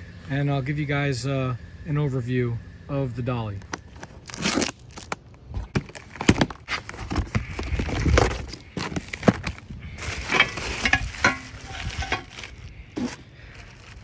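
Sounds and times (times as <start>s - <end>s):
plastic wrap crinkling: 3.6s - 14.0s.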